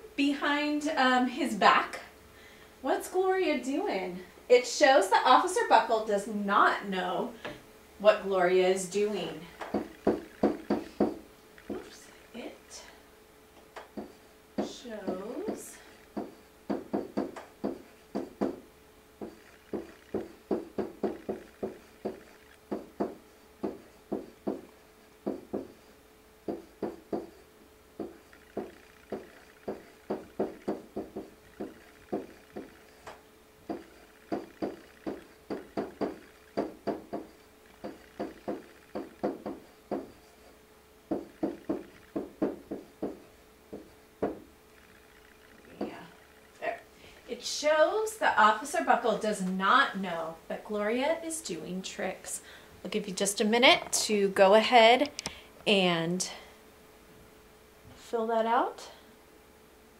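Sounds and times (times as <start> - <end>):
marker squeaking on paper: 9.7 - 12.2, 19.2 - 24.2, 25.5 - 40.6.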